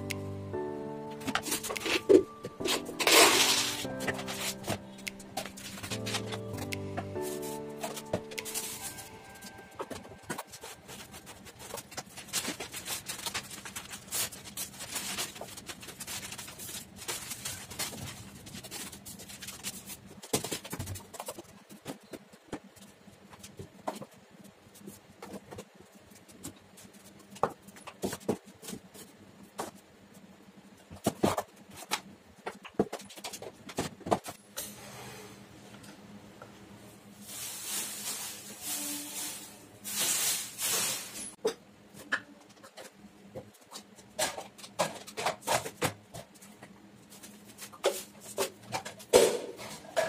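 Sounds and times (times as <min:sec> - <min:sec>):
plastic bag and newspaper rustling: 0:01.2 - 0:06.6, 0:07.2 - 0:21.8, 0:37.1 - 0:41.4.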